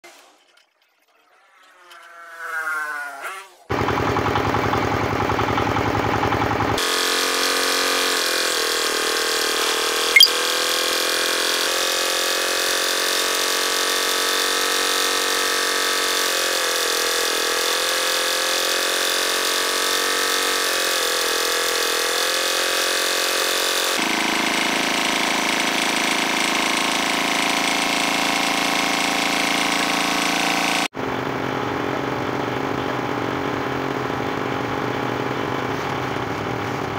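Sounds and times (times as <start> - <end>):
boring machine drilling wood: 6.8 - 34.8.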